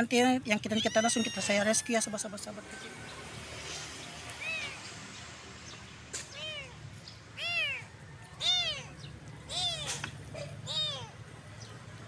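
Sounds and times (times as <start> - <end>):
kitten meowing: 0.7 - 1.6, 4.4 - 4.8, 6.2 - 6.8, 7.4 - 10.0, 10.6 - 11.2.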